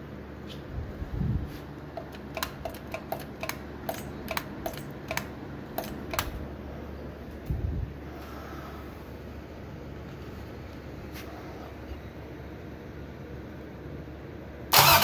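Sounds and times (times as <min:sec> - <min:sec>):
throttle linkage clicking: 0:02.0 - 0:06.4.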